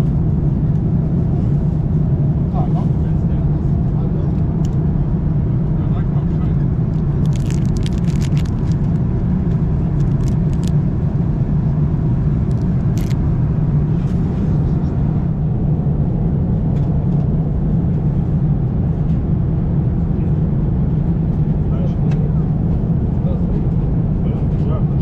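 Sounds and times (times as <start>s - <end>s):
airliner cabin rumble: 0.0s - 25.0s
plastic packet crinkling: 7.0s - 9.0s, 9.9s - 10.7s, 12.5s - 13.2s.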